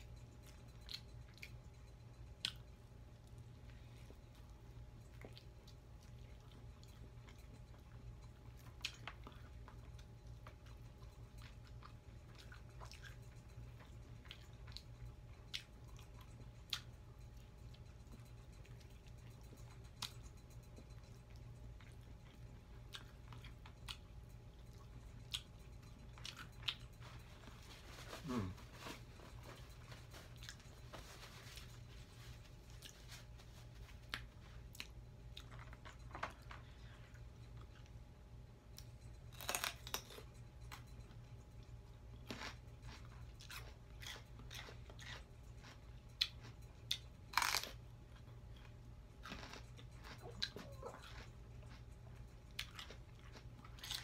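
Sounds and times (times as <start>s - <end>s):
chewing and crunching food: 0.0s - 54.0s
steady low hum: 0.0s - 54.0s.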